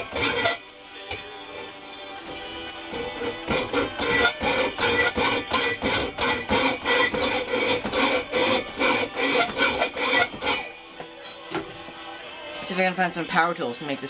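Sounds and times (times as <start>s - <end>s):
hacksaw cutting metal pipe: 0.0s - 1.7s, 2.3s - 11.6s.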